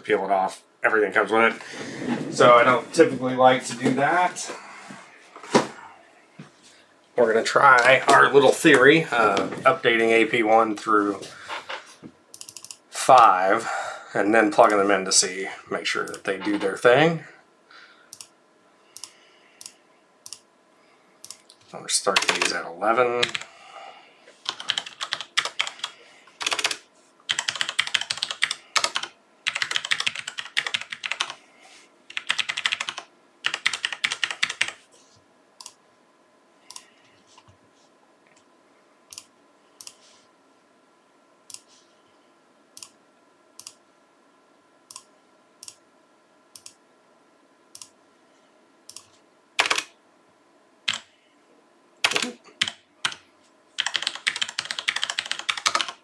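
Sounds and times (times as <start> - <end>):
computer keyboard typing: 12.4 - 12.8, 22.1 - 22.6, 23.2 - 23.5, 24.4 - 31.4, 32.1 - 34.8, 48.9 - 49.9, 50.9 - 51.1, 52.0 - 53.2, 53.8 - 56.0.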